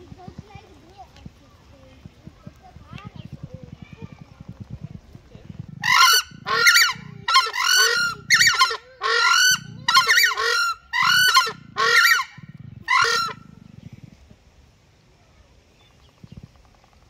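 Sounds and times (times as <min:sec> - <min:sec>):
screamer birds honking calls: 0:05.5 - 0:14.0.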